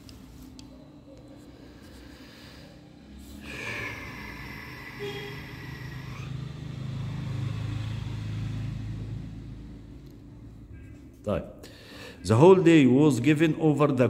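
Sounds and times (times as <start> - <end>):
vehicle engine passing: 1.5 - 11.1
steady high-pitched tone: 3.5 - 6.3.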